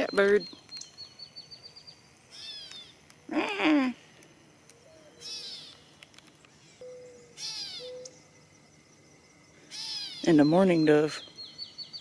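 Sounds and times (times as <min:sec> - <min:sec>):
catbird mewing: 0:02.3 - 0:02.9, 0:05.0 - 0:05.8, 0:06.8 - 0:08.2, 0:09.7 - 0:10.4
faint mourning dove coos: 0:06.8 - 0:08.2.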